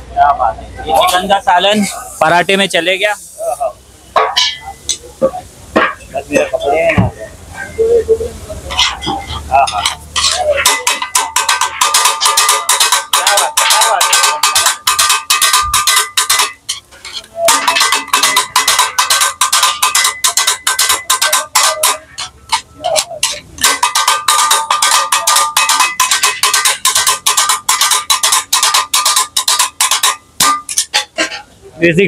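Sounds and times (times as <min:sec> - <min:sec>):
steel blades chopping on iron griddle: 0:08.8 - 0:31.5.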